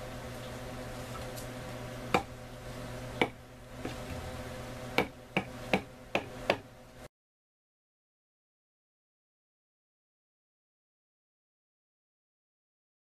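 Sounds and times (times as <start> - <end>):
steady low hum: 0.0 - 7.1.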